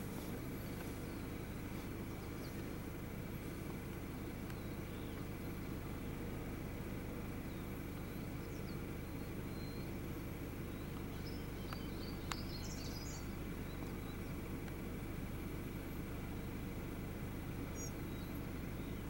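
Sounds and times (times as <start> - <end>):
small birds chirping: 0.0 - 19.0
vehicle engine idling: 0.0 - 19.0.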